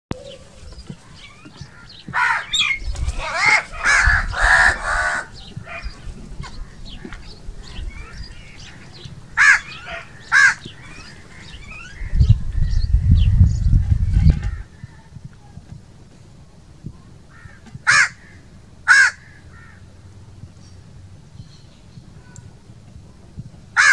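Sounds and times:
small birds chirping: 0.1 - 15.9, 19.2 - 23.2
crow cawing: 1.6 - 6.0, 8.0 - 12.1, 17.3 - 19.9.

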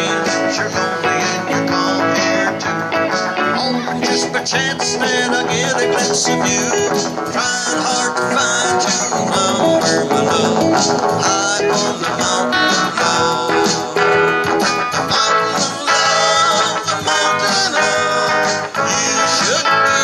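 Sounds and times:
electric guitars playing: 0.0 - 20.0.

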